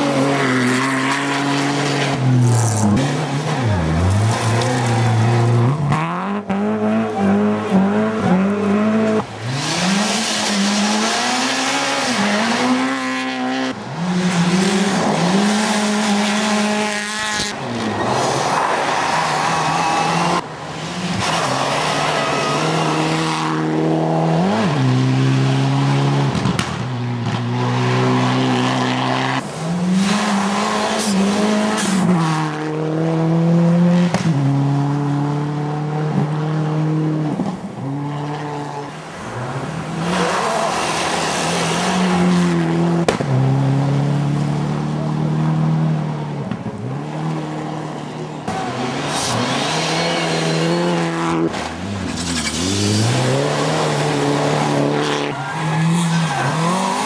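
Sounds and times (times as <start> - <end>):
rally car engines revving: 0.0 - 57.0.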